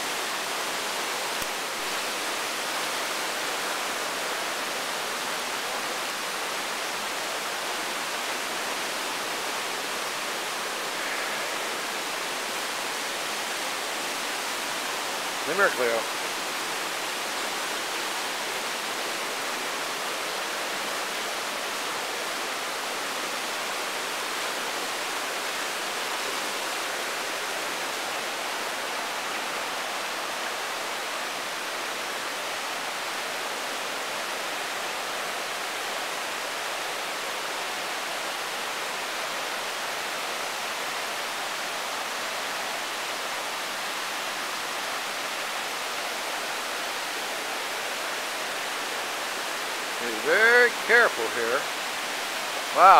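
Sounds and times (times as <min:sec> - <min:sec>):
river rapids rushing: 0:00.0 - 0:52.9.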